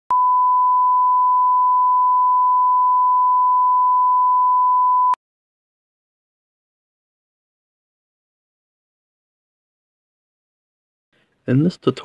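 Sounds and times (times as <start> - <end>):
steady test tone beep: 0.1 - 5.2.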